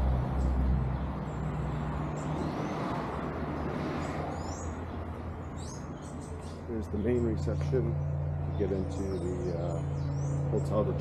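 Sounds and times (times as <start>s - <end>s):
bird chirps: 5.4s - 11.0s
vehicle engine running: 6.6s - 11.0s.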